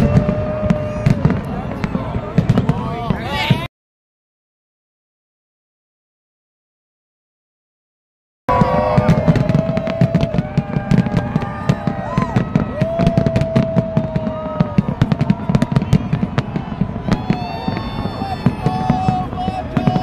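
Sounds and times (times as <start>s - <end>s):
fireworks bangs and crackles: 0.0s - 3.7s, 8.5s - 20.0s.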